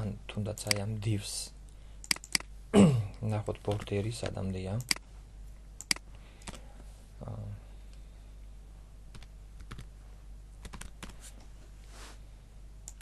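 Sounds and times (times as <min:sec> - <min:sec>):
steady low hum: 0:00.0 - 0:13.0
keyboard keystrokes: 0:10.6 - 0:11.2.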